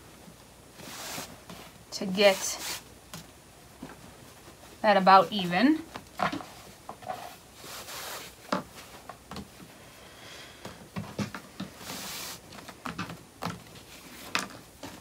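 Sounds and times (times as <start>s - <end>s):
cloth swishing: 0.7s - 2.9s, 6.5s - 9.0s, 11.8s - 12.5s.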